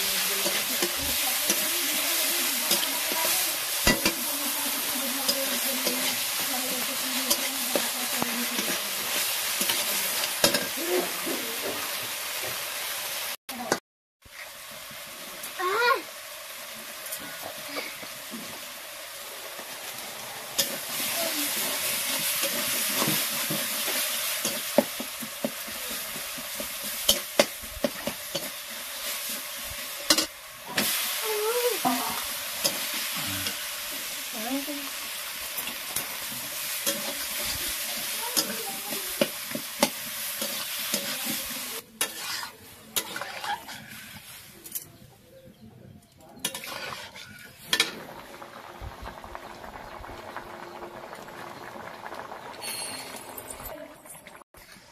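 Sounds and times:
vegetables sizzling in hot oil: 0.0s - 44.9s, 46.4s - 54.9s
metal spatula scraping pan: 36.8s - 44.8s, 46.4s - 48.0s.

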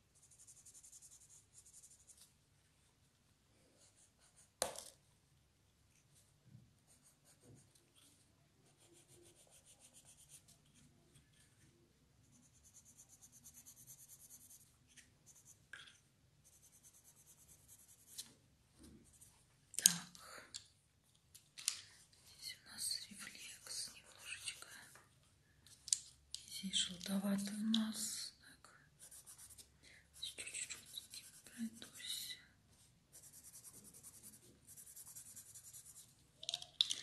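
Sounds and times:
pencil scratching on paper: 0.2s - 2.2s, 6.9s - 7.8s, 8.6s - 10.5s, 12.2s - 15.6s, 16.4s - 18.2s, 29.0s - 32.0s, 33.1s - 36.1s.

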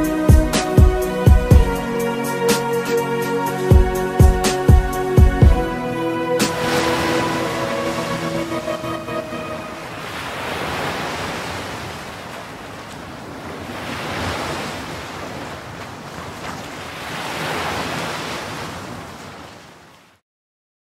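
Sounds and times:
ocean surf breaking on beach: 6.2s - 20.2s.

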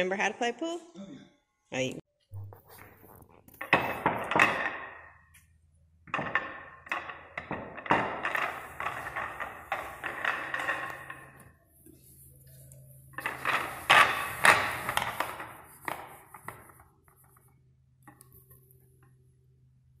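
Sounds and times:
pool balls clacking: 3.4s - 17.5s
sharp knocks of pool balls: 3.6s - 5.4s.

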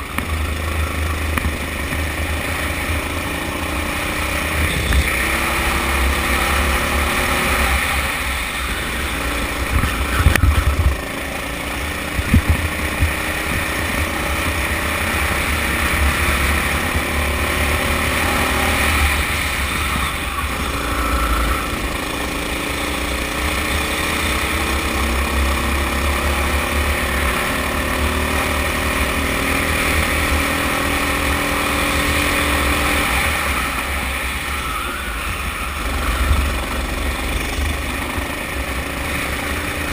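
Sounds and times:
kart engine accelerating: 0.0s - 39.9s
wind on microphone: 9.7s - 11.0s, 12.1s - 13.7s.

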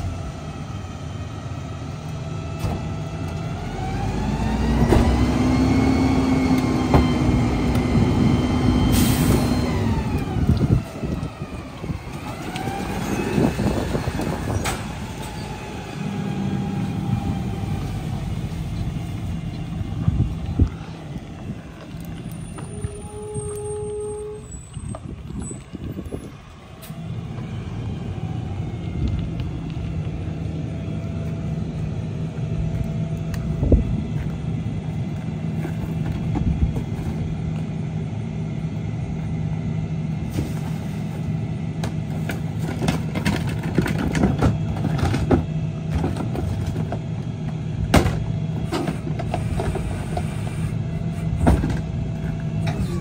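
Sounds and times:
garbage truck engine running: 24.4s - 53.0s.

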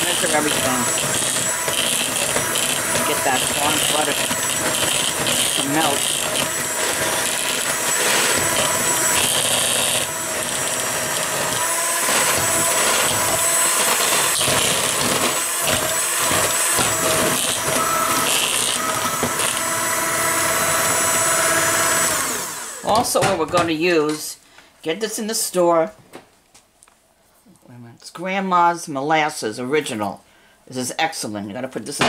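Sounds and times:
electric hand mixer running: 0.0s - 23.2s.

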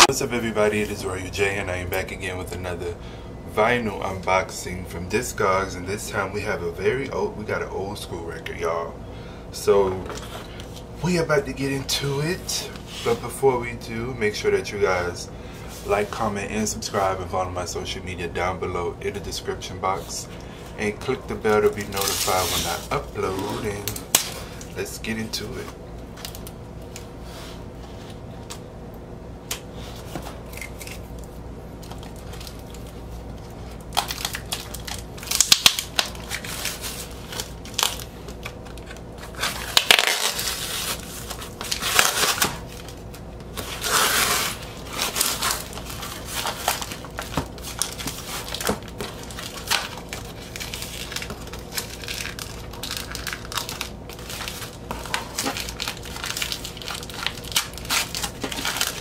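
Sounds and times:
plastic wrapping rustling: 20.8s - 28.4s, 29.7s - 59.0s
packing tape ripping: 21.8s - 24.7s, 33.9s - 59.0s.

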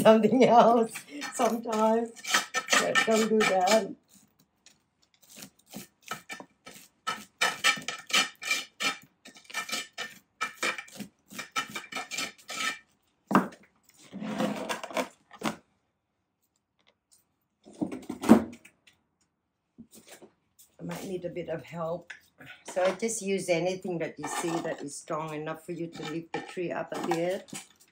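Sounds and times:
hand tool clinking on pot: 0.5s - 3.9s.

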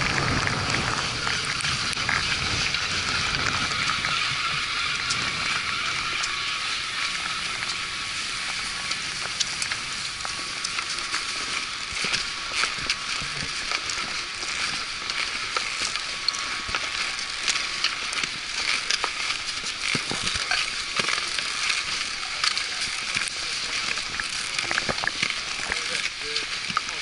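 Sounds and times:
ski edges and poles crunching: 0.0s - 27.0s
skis sliding over snow: 0.0s - 27.0s.

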